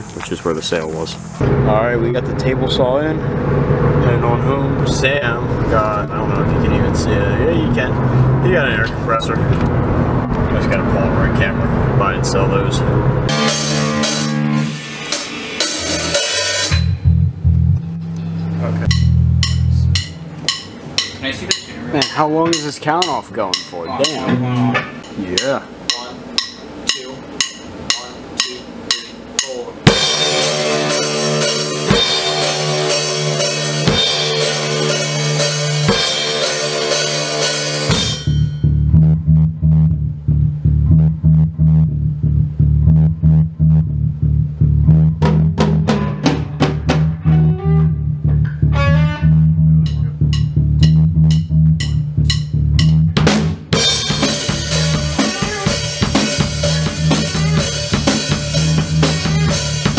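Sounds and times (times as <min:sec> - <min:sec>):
rock band playing: 0:13.1 - 0:39.0, 0:44.9 - 0:59.9
drum hits: 0:13.3 - 0:17.3, 0:18.8 - 0:38.7, 0:45.0 - 0:47.5, 0:49.8 - 0:59.9.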